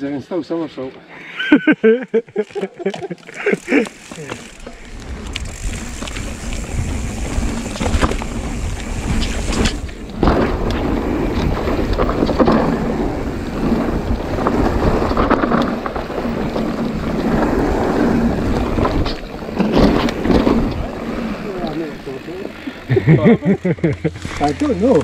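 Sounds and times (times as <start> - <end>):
wind buffeting microphone: 4.7 - 23.3.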